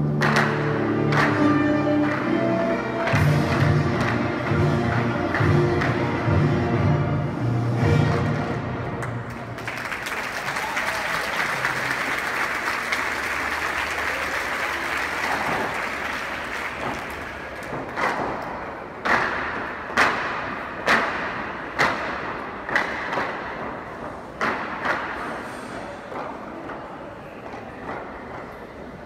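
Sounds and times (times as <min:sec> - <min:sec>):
crowd applause: 0:09.0 - 0:18.0.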